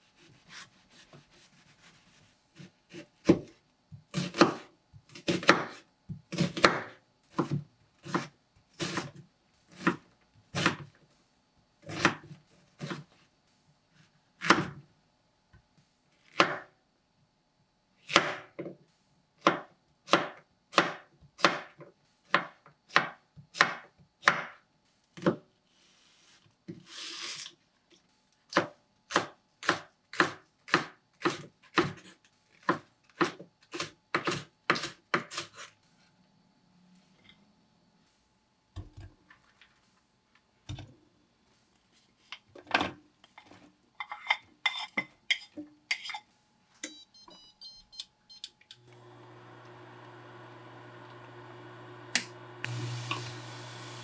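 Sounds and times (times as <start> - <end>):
knife chopping on wooden board: 2.6 - 10.8, 18.1 - 18.6, 19.4 - 24.6, 28.5 - 35.6.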